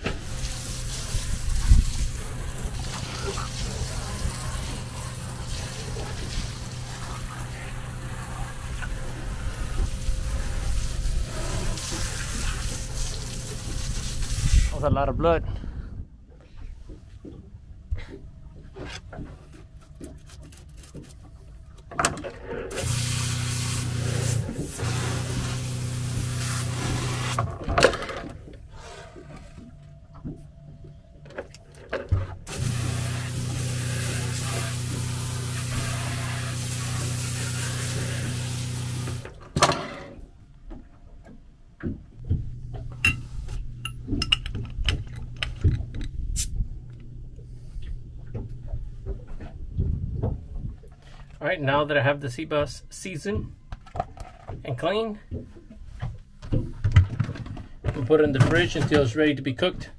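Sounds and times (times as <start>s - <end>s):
pump humming: 0.0s - 14.6s, 22.7s - 27.4s, 32.4s - 39.4s, 42.2s - 49.5s
hose spraying water: 0.0s - 14.8s, 22.7s - 27.4s, 32.5s - 39.4s, 44.9s - 46.6s.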